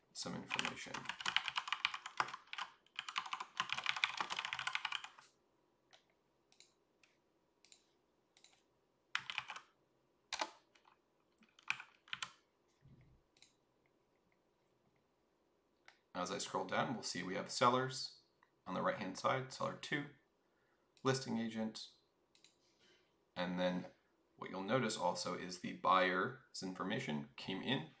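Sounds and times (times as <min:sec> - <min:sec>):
typing on a computer keyboard: 0:00.4 - 0:05.3, 0:05.9 - 0:12.4.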